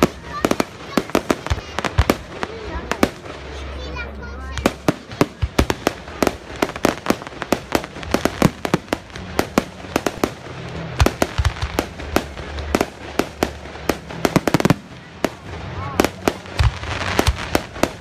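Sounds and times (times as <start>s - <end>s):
fireworks bursting: 0.0s - 18.0s.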